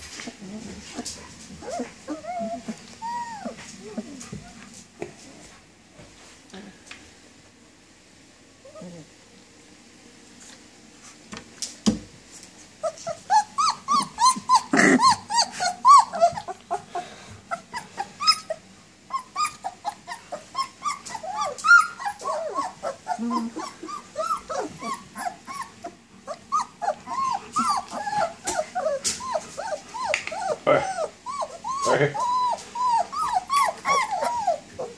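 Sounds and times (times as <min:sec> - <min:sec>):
puppies whining and whimpering: 0:00.0 - 0:04.8, 0:08.6 - 0:09.2, 0:12.8 - 0:34.9.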